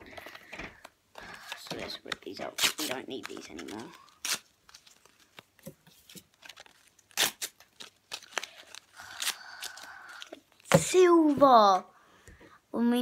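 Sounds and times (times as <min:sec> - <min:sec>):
foil wrappers tearing and crinkling: 0:01.3 - 0:10.7.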